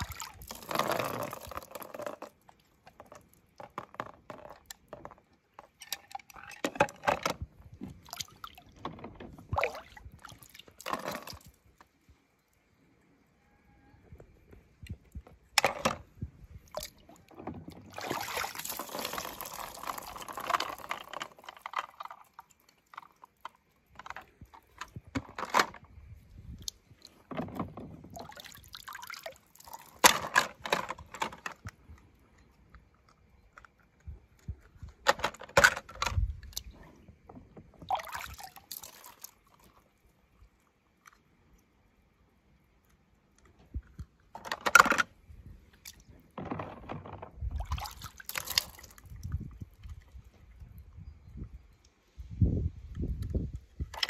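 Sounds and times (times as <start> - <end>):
water splashing and dripping: 0.0 - 3.8, 7.6 - 11.9, 16.5 - 25.0, 28.0 - 30.9, 37.7 - 41.3, 47.4 - 50.6.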